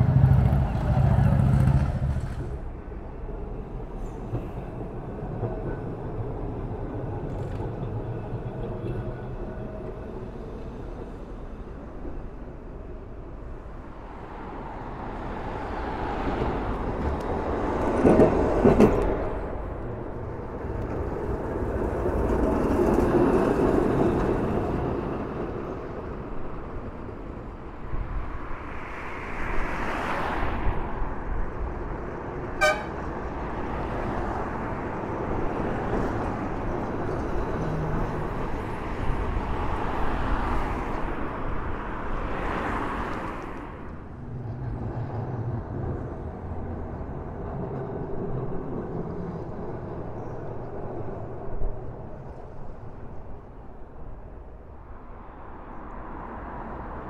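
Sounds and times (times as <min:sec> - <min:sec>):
tram running: 0:00.0 - 0:57.0
tram horn toots: 0:32.5 - 0:33.2.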